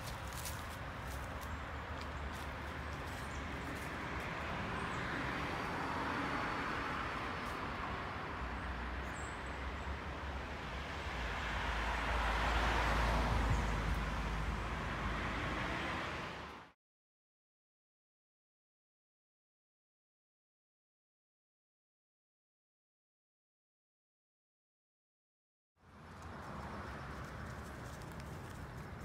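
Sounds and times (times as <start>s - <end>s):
cars passing: 0.0s - 16.8s, 25.8s - 29.0s
low traffic rumble: 0.0s - 16.8s, 25.8s - 29.0s.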